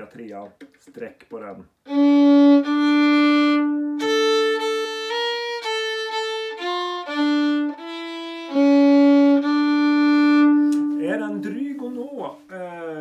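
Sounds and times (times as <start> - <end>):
solo fiddle folk melody: 1.8 - 13.0.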